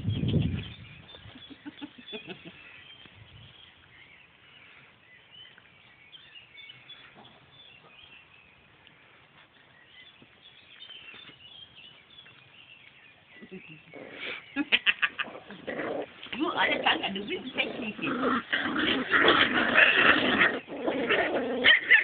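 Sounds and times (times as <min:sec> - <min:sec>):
faint birds chirping: 0:00.0 - 0:22.0
puppies play-fighting: 0:13.8 - 0:22.0.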